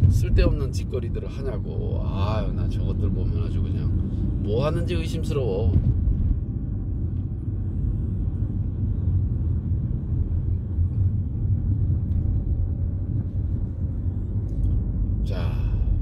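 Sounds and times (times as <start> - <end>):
car interior engine and tyre rumble: 0.0 - 16.0.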